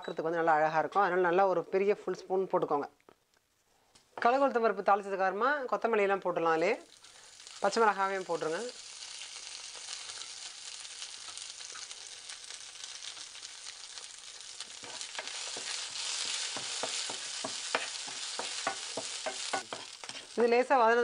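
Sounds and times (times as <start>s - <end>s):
hot oil sizzling in a frying pan: 6.8s - 21.0s.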